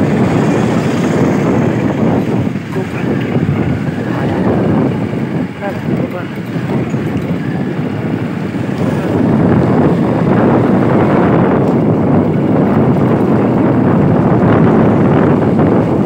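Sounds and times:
motorbike engine running: 0.0s - 16.0s
wind rushing over microphone: 0.0s - 16.0s.

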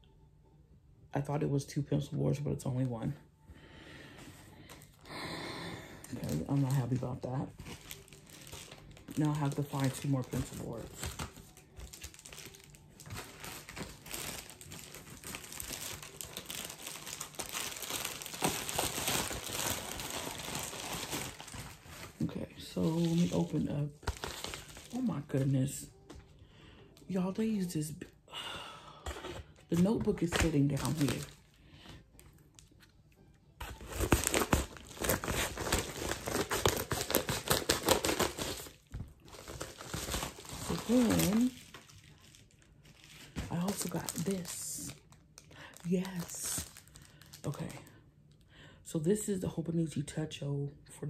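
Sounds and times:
plastic packaging crinkling: 6.0s - 26.3s, 29.1s - 33.0s, 33.6s - 48.0s.

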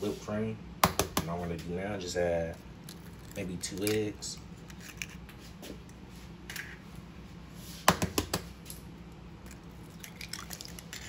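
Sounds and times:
egg cracking on a bowl: 2.7s - 5.3s, 9.1s - 11.0s.

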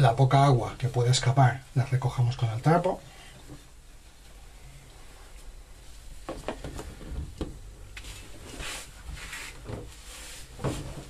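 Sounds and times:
cloth rustling: 4.9s - 11.0s.

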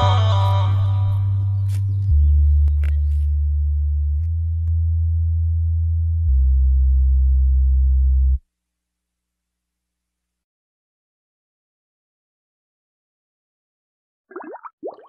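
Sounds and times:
deep electronic bass notes: 0.0s - 8.4s.

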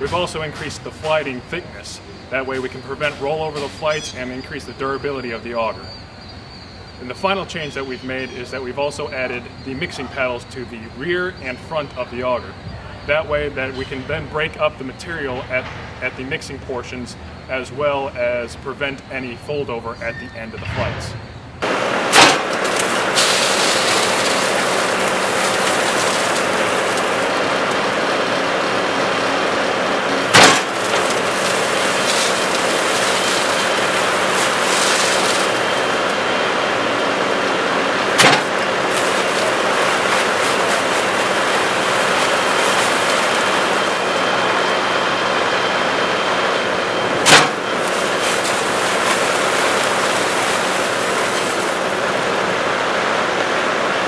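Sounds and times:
auger churning concrete mix: 21.6s - 53.8s
engine running steadily: 21.6s - 54.0s
sharp knocks: 38.2s - 38.6s.

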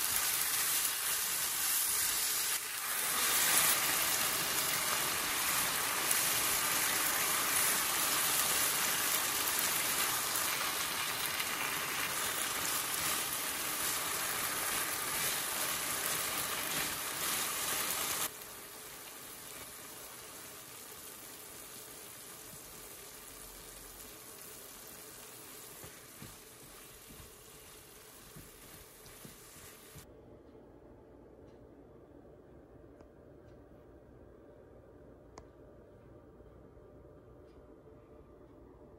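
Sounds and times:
spatula stirring in a pan: 0.0s - 18.3s, 24.4s - 30.0s
food sizzling in a frying pan: 0.0s - 30.0s.

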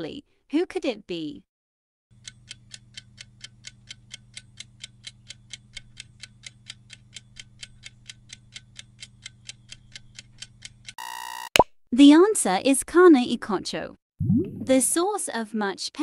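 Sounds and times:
clock ticking: 2.2s - 11.0s.

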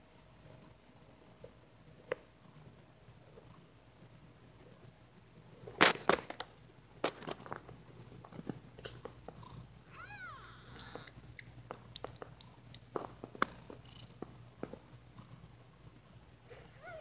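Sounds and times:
knocks and rustles: 5.7s - 9.5s
cat purring: 8.2s - 11.4s, 12.4s - 17.0s
kitten mewing: 9.9s - 11.2s.

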